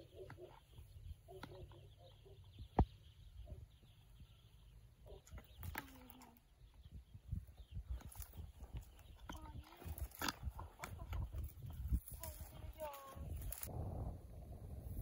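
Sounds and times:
wind rumbling on microphone: 6.6 - 15.0.

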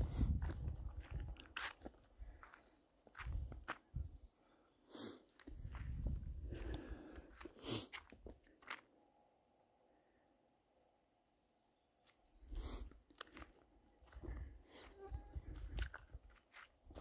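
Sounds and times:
muffled low rumbles: 0.0 - 1.6
footsteps on dirt trail: 0.0 - 4.4, 5.4 - 8.9, 12.0 - 17.0.

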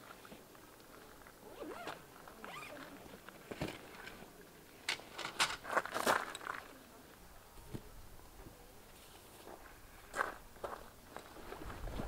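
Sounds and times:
zipper noise: 1.4 - 2.9.

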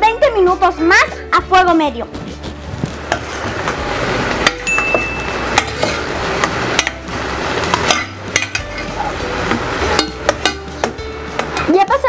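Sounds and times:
utensil clinking against pot: 4.4 - 7.0, 7.7 - 11.7
metal utensil stirring thick sauce: 5.5 - 11.7.

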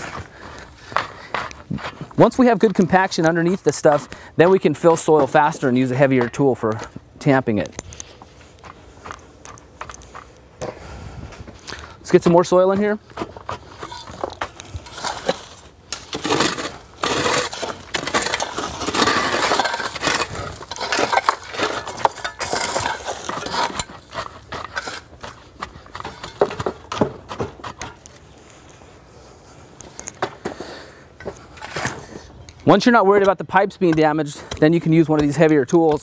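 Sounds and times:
shovels scooping rocky soil: 0.0 - 10.2, 11.1 - 29.0, 31.2 - 36.0.

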